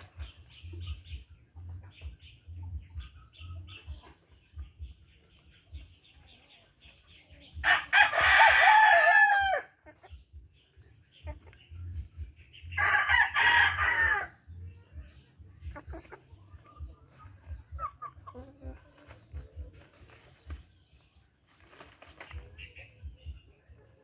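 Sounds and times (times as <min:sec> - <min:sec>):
rooster crowing: 0:07.6 - 0:09.7, 0:12.8 - 0:14.3
hens clucking: 0:09.6 - 0:12.1, 0:15.5 - 0:20.7.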